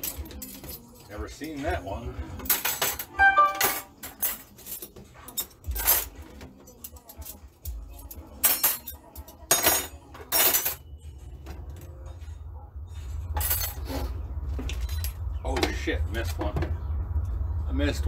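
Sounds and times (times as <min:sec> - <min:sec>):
metal cutlery clinking: 0:00.0 - 0:01.6, 0:02.4 - 0:10.9.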